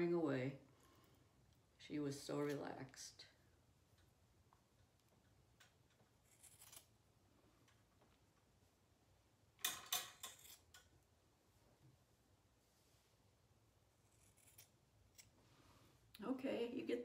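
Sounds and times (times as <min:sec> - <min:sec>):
scissors snipping fur: 0:14.1 - 0:15.3.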